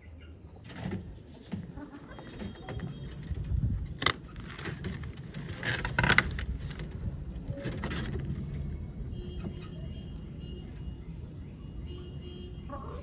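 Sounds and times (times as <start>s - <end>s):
door scraping: 3.9s - 6.9s
plastic sheeting rustling: 4.0s - 6.9s.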